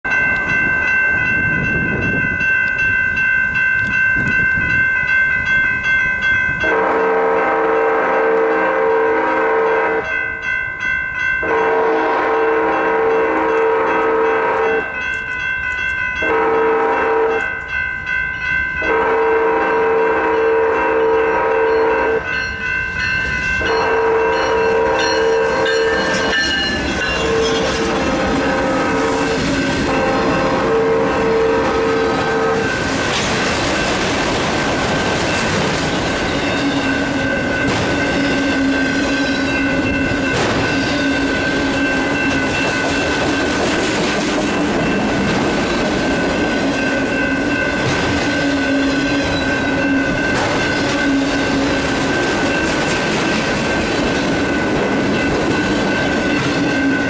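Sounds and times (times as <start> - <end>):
crossing bell dinging: 0.0 - 57.0
locomotive air horn blast: 6.6 - 10.1, 11.4 - 14.9, 16.2 - 17.5, 18.8 - 22.2, 23.6 - 26.4, 27.2 - 32.8, 38.1 - 39.5
wheels on rails: 21.7 - 57.0.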